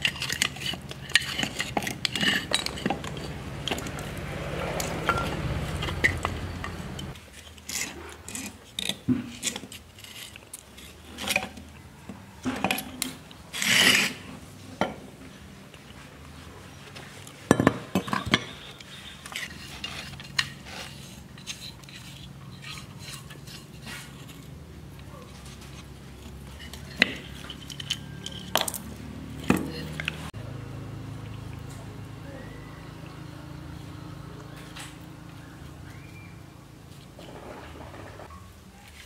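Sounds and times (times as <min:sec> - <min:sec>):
metal parts clinking and knocking: 0:00.0 - 0:04.1, 0:25.7 - 0:30.1
metal rasping: 0:00.0 - 0:11.4, 0:18.5 - 0:24.6
metal scraping: 0:00.0 - 0:11.6, 0:12.4 - 0:14.6, 0:17.9 - 0:30.4, 0:33.6 - 0:39.0.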